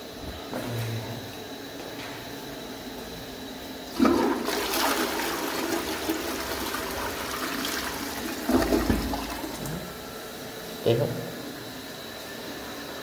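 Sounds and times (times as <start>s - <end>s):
toilet flushing: 3.9s - 10.4s.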